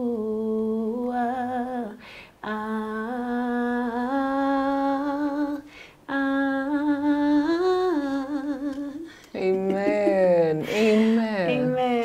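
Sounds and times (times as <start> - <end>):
woman breathing: 2.0 - 2.4, 5.6 - 6.1, 10.6 - 11.5.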